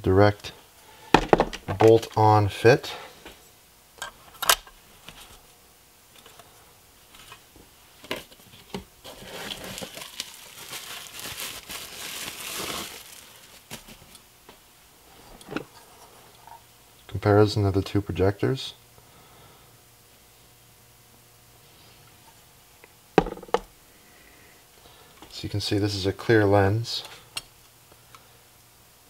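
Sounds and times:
sharp clicks of parts handled: 4.0 - 4.8
packaging crinkling: 9.0 - 14.2.

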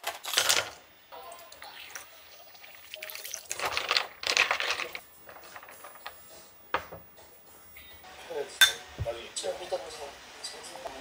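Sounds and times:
ice and liquid sloshing in glass: 1.9 - 6.1.

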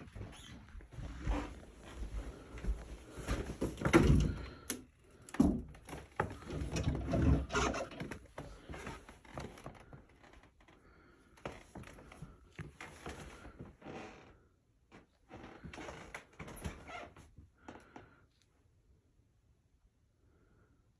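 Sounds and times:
footsteps on hardwood floor: 0.0 - 4.5.

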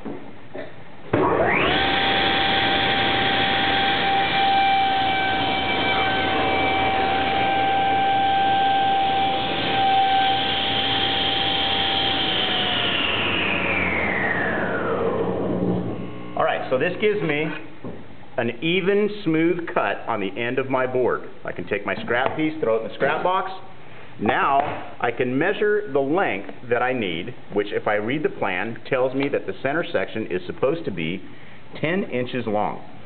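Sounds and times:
table saw whining: 1.2 - 17.6
saw cutting board: 1.4 - 14.6.

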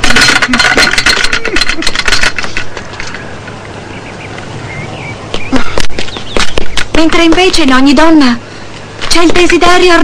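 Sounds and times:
faint bird chirps: 3.1 - 6.9.

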